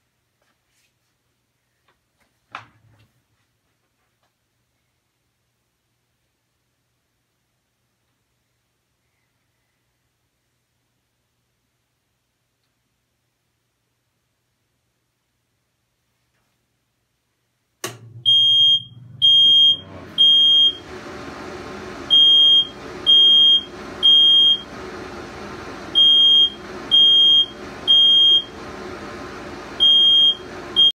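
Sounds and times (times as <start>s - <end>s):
exhaust fan whirring: 17.8s - 31.0s
smoke alarm beeping: 18.2s - 20.9s, 22.1s - 24.7s, 26.0s - 28.6s, 29.8s - 31.0s.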